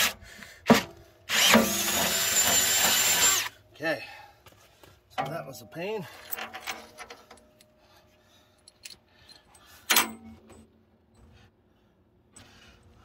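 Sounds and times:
bolts clinking on steel: 5.2s - 7.8s, 8.6s - 11.3s.

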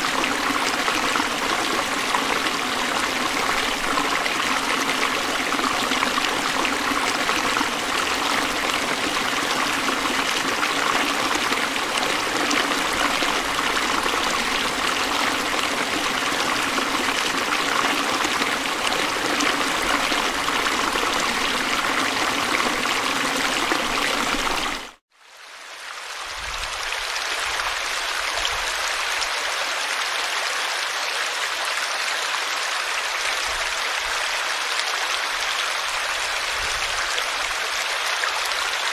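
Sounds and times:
stream rushing over rocks: 0.0s - 25.0s, 25.8s - 38.9s
water spilling into a pool: 0.0s - 25.0s.

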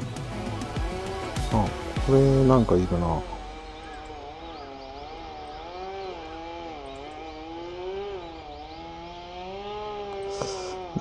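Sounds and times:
small engine droning: 0.0s - 11.0s
faint bird chirps: 2.8s - 10.8s.

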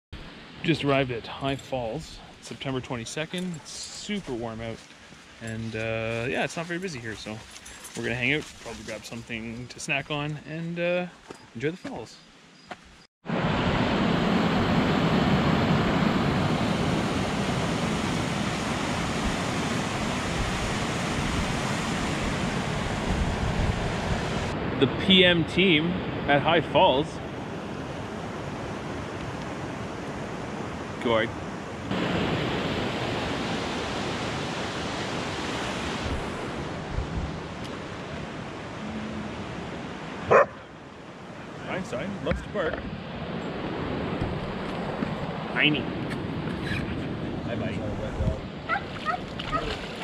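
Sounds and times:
dog barking: 40.3s - 40.7s, 48.7s - 49.8s.

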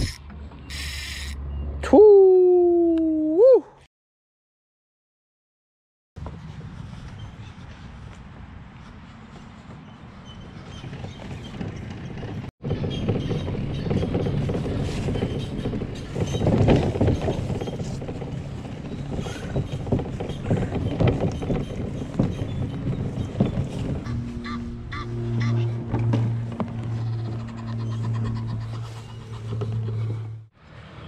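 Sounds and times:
kayak rattling on wheeled cart: 10.6s - 24.3s.

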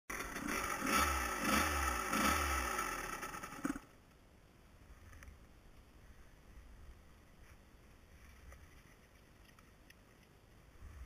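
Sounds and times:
dirt bike engine revving: 0.1s - 3.9s.

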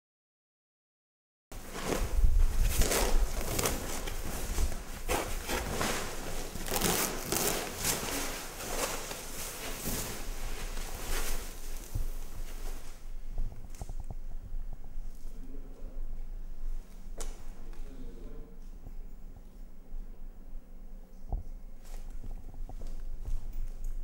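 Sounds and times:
sheet rustling and crackling: 1.6s - 15.3s.

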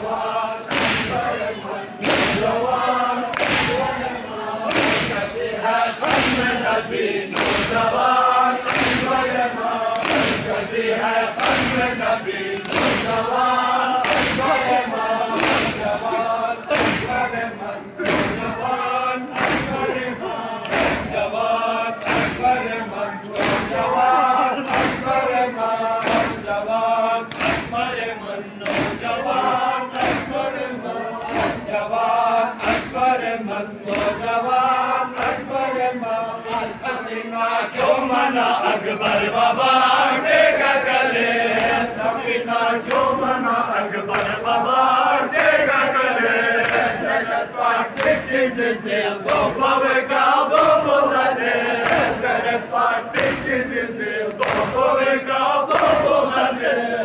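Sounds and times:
men chanting in unison: 0.0s - 57.0s
hands slapping chests: 0.7s - 1.2s, 2.0s - 2.6s, 3.3s - 3.9s, 4.6s - 5.2s, 6.0s - 6.5s, 7.3s - 7.8s, 8.6s - 10.6s, 11.4s - 11.9s, 12.6s - 13.2s, 13.9s - 17.2s, 18.0s - 18.5s, 19.3s - 20.0s, 20.6s - 21.2s, 22.0s - 22.5s, 23.4s - 23.9s, 24.6s - 25.2s, 25.9s - 26.5s, 27.3s - 27.8s, 28.6s - 29.1s, 30.0s - 30.4s, 31.2s - 31.6s, 33.9s - 34.2s, 41.6s - 41.9s, 44.1s - 44.4s, 46.6s - 47.0s, 47.9s - 48.3s, 50.5s - 50.9s, 51.8s - 52.2s, 53.1s - 53.6s, 54.3s - 54.8s, 55.7s - 56.0s.

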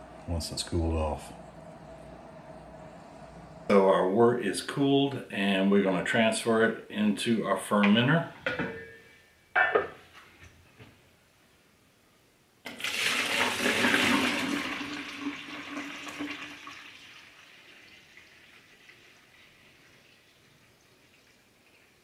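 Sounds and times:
liquid pouring and splashing: 12.7s - 22.0s.

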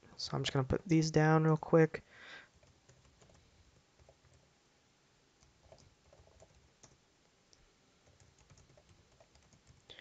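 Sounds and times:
faint keyboard typing: 2.5s - 4.5s, 5.4s - 10.0s.

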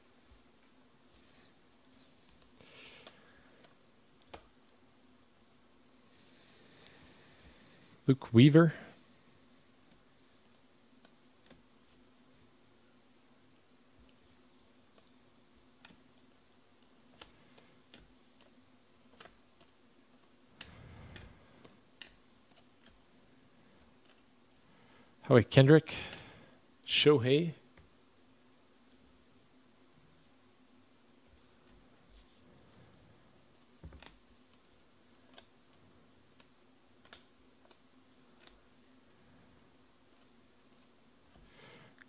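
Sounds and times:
low steady hum: 0.0s - 42.0s
cards rustling: 16.8s - 20.4s
cards clicking: 17.1s - 23.0s.

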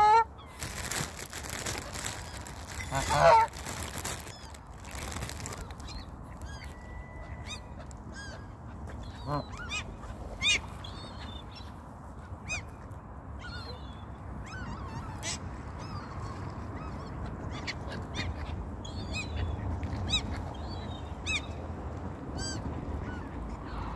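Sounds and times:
geese and gulls calling: 0.0s - 11.5s.

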